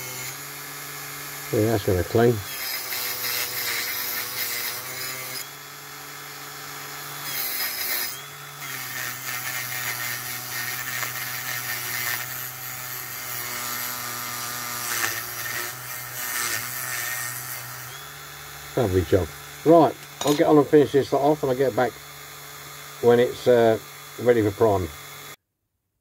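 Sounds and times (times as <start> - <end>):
rotary tool motor whine: 0.0 - 25.4
wire brush scratching metal: 1.7 - 5.5.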